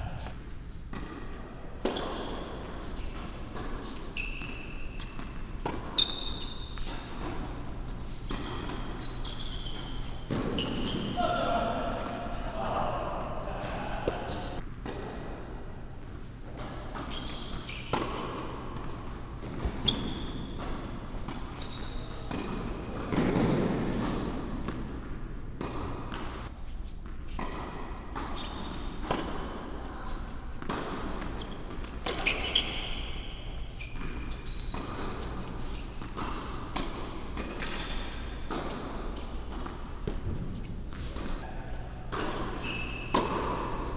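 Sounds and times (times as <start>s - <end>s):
shoe squeaks: 1.8s - 11.5s, 16.8s - 22.4s, 28.2s - 29.0s, 31.1s - 36.1s, 37.6s - 38.5s, 42.4s - 43.9s.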